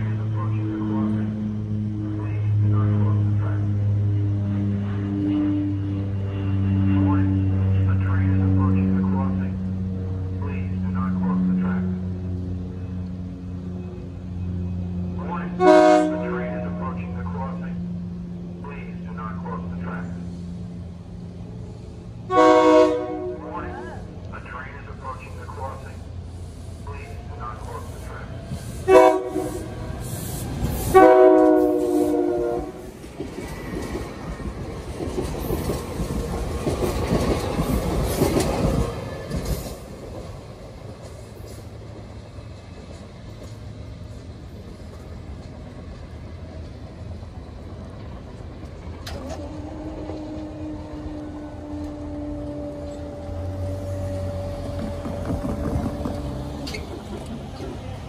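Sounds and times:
train horn blasts: 0.5 - 9.0, 15.4 - 16.9, 22.3 - 23.8, 28.8 - 29.9, 30.8 - 32.9, 49.2 - 56.8
train wheels clattering on rails: 32.8 - 50.5, 54.1 - 58.0.

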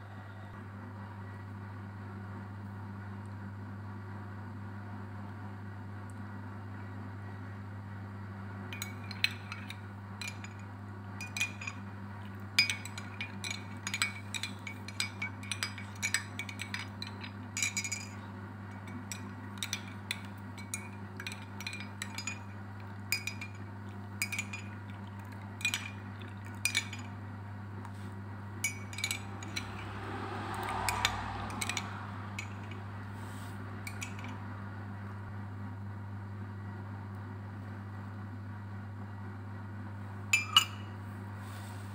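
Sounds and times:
steady low hum: 0.0 - 41.9
spoon clinking against glass jar: 8.7 - 10.6, 11.2 - 11.8, 12.6 - 27.1, 28.6 - 29.9, 30.5 - 32.8, 33.9 - 34.4, 40.4 - 41.0.

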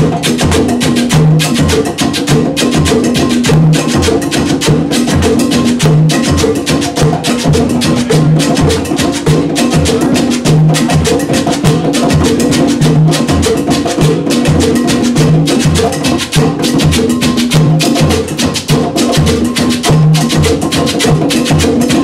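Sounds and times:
conga drums played by hand: 0.0 - 22.0.

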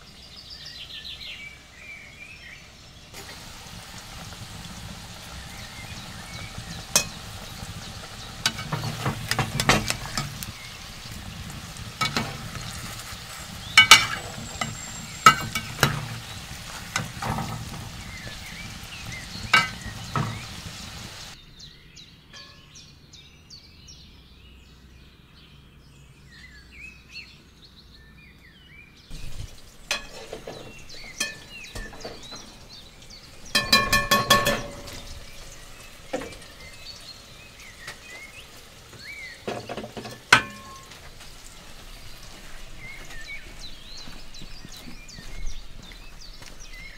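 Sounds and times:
potatoes sizzling in oil: 0.0 - 21.4, 29.1 - 46.9
metal pots clattering: 3.2 - 21.4, 29.1 - 36.9, 37.7 - 43.7
faint chirping: 4.6 - 23.7, 29.1 - 39.6
metal spoon clinking on pan: 6.9 - 7.3, 8.4 - 10.5, 12.0 - 12.8, 13.8 - 16.2, 19.5 - 20.4, 29.9 - 32.4, 33.5 - 35.3, 40.0 - 41.0.

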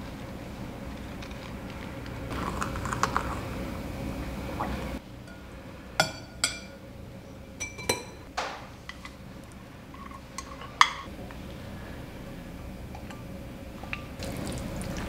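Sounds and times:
kitchenware clinking on glass bowl: 5.3 - 6.8, 7.6 - 8.3.

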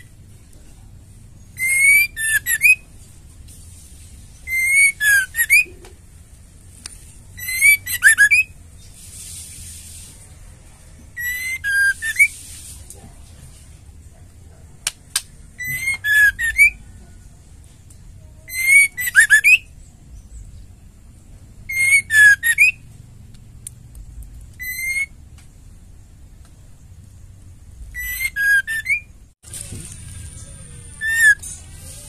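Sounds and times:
bird singing whistled notes: 1.4 - 2.9, 4.4 - 5.8, 7.3 - 8.6, 11.2 - 12.4, 15.6 - 16.9, 18.5 - 20.4, 21.7 - 22.8, 24.6 - 25.2, 27.9 - 29.2, 30.3 - 31.6.

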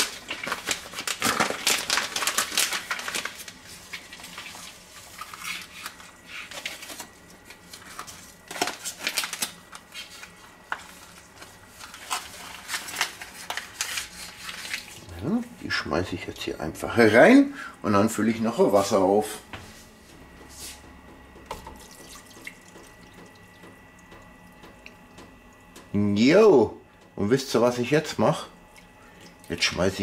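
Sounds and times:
plastic bags crinkling: 0.0 - 15.1.

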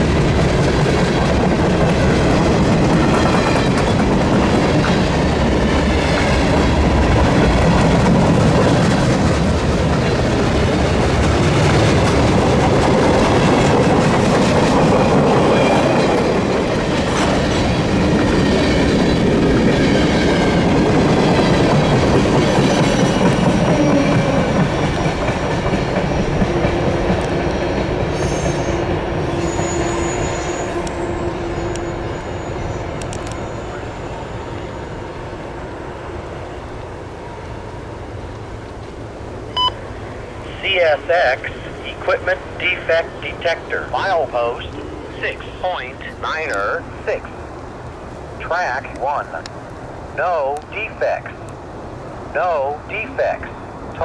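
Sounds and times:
train wheels clattering over rails: 0.0 - 32.2
wheel squeals: 28.1 - 34.0.

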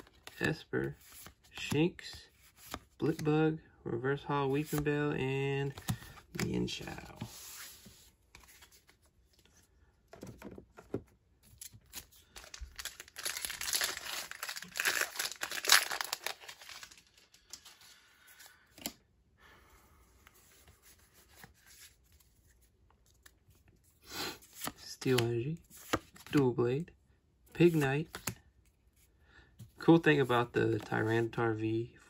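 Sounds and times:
foil wrapper crinkling and tearing: 12.3 - 17.5.

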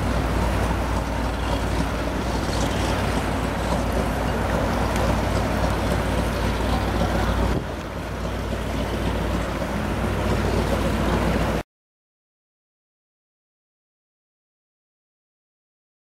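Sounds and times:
powerboat engine drone: 0.0 - 11.6
water and wind noise: 0.0 - 11.6.

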